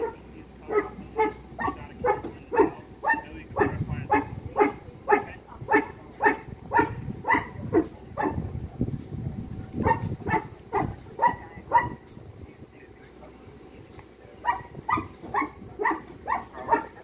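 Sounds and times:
dog barking: 0.0 - 8.5, 9.8 - 12.0, 14.4 - 17.0.

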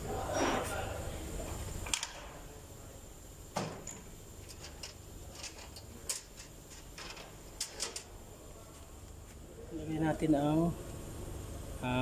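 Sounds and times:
tools clicking and knocking: 3.6 - 8.1.

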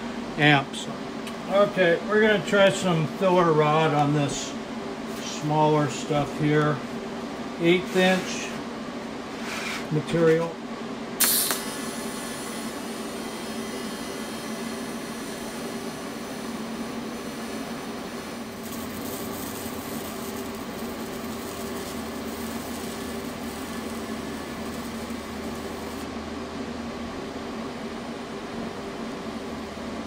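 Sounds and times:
welding arc hissing: 11.2 - 26.1.

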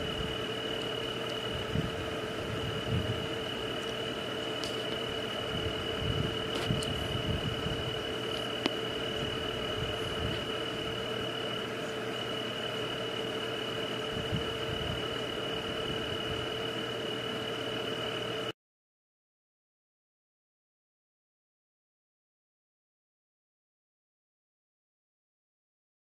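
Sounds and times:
high-pitched insect trill: 0.0 - 18.5
low steady drone: 0.0 - 18.5.

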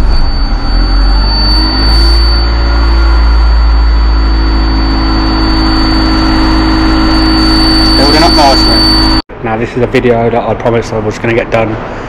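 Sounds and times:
air compressor building pressure: 0.0 - 9.2
high-pitched tone: 0.0 - 9.2.

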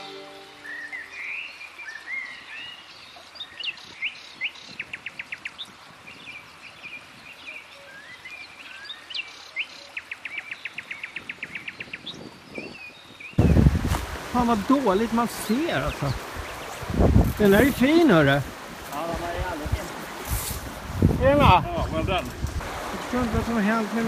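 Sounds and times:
small songbird singing: 0.0 - 13.7, 14.7 - 17.8
faint river rush: 0.0 - 24.0.

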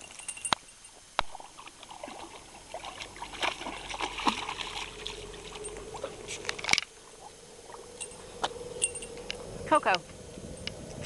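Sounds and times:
puppy splashing in water: 1.3 - 8.2.

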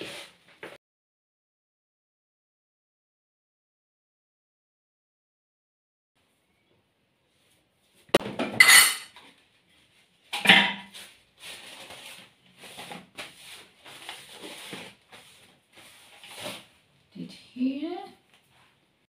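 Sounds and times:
paper towel wiping countertop: 0.0 - 0.4, 10.9 - 16.7.

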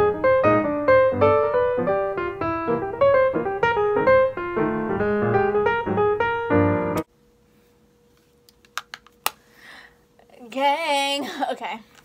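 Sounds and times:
piano music: 0.0 - 7.1
faint steady hum: 7.0 - 12.0.

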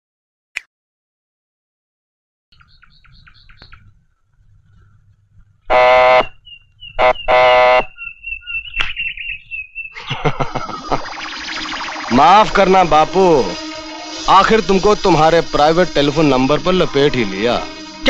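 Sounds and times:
thin high wavering tone: 10.8 - 14.6.

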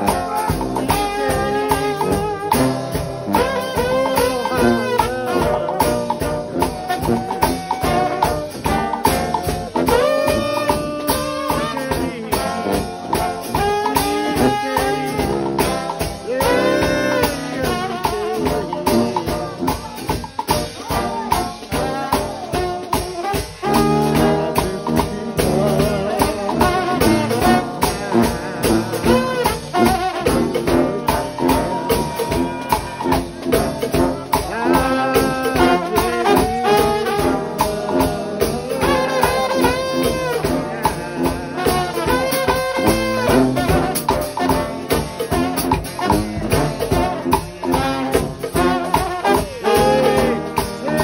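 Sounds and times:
drum kit beat: 0.0 - 51.0
trombones with sliding notes: 0.0 - 51.0.

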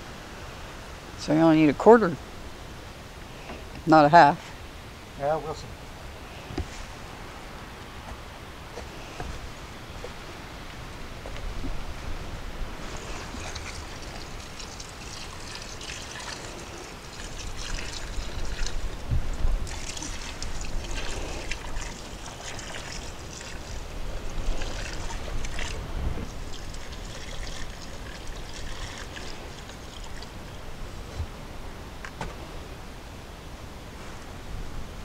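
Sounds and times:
water pouring into concrete mix: 12.8 - 30.6.

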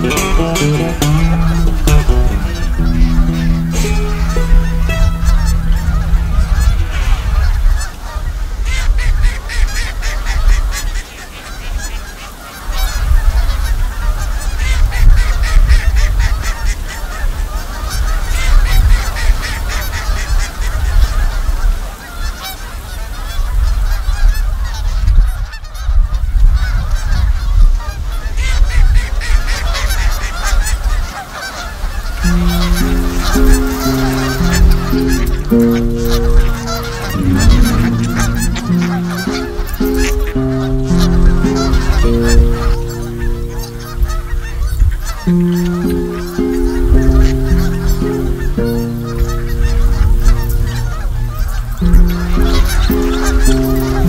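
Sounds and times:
geese honking: 0.0 - 23.0, 29.8 - 54.0
wind rumble on microphone: 4.9 - 11.9, 12.7 - 21.9, 22.8 - 31.1, 44.0 - 45.4.

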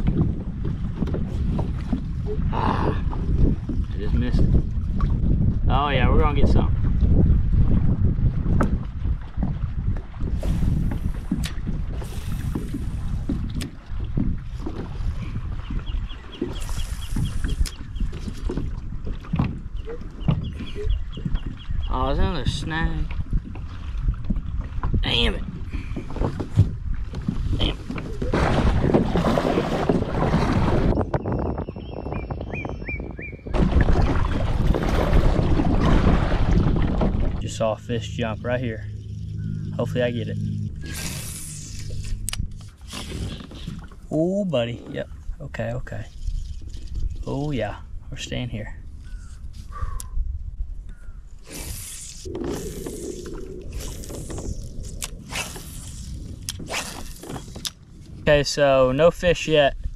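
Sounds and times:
water sounds: 0.0 - 31.3, 33.4 - 59.9
wind buffeting microphone: 0.0 - 59.9
low rumble: 33.5 - 44.2
scraping and rubbing: 40.7 - 43.8.

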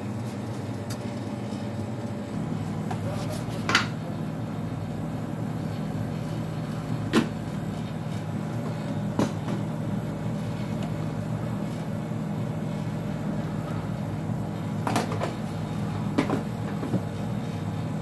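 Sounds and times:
espresso machine humming: 0.0 - 18.0.

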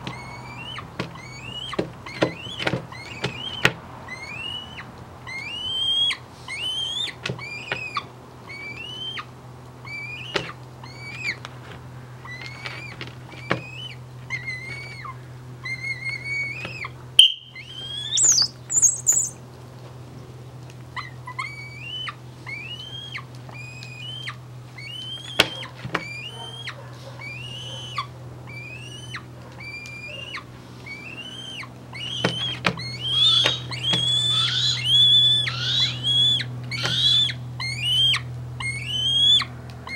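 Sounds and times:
hawk whining call: 13.6 - 19.4, 21.4 - 39.9
short high whistle: 17.2 - 17.6.

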